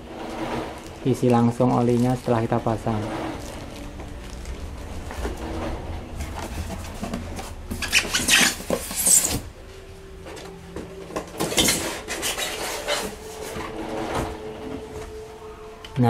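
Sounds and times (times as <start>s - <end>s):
foam squeaking against cardboard box: 7.7s - 9.5s, 11.5s - 13.6s.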